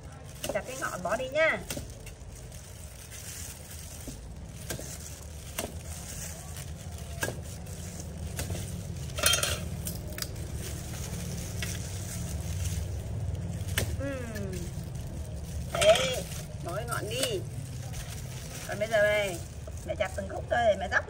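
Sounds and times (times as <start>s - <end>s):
steady low rumble: 0.0s - 21.0s
cleaver hacking sugarcane: 0.3s - 2.2s, 3.5s - 15.0s.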